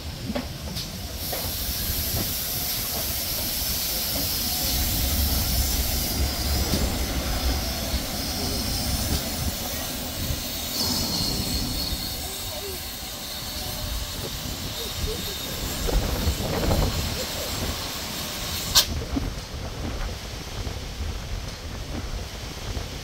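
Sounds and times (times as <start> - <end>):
locomotive steam hissing: 0.0 - 23.0
low rumble of train: 0.0 - 23.0.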